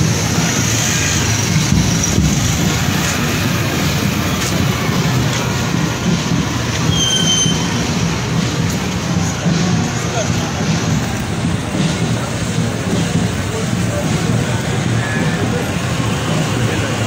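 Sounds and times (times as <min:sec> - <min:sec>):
short high whistle tone: 0:06.9 - 0:07.7.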